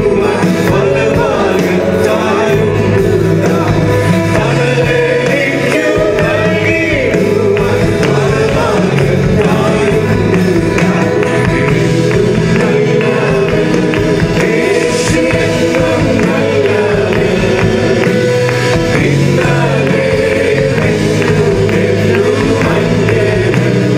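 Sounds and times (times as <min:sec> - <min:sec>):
acoustic guitar: 0:00.0 - 0:23.9
group singing worship song: 0:00.0 - 0:23.9
keyboard: 0:00.0 - 0:23.9.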